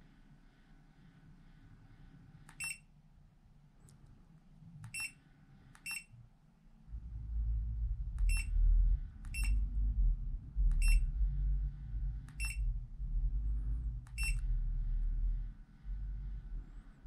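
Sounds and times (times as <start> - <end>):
steady low rumble: 0.0 - 17.0
high electronic double beeps: 12.4 - 12.7, 14.2 - 14.4.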